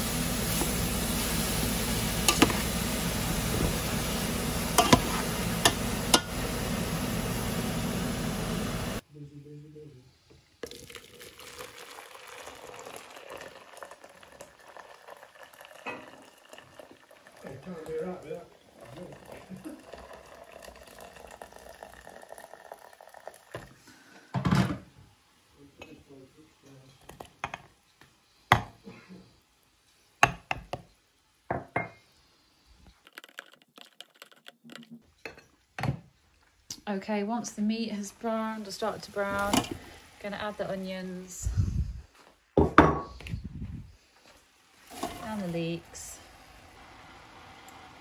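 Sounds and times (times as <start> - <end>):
water pouring into plastic jug: 10.6 - 23.8, 33.0 - 35.0, 44.8 - 48.0.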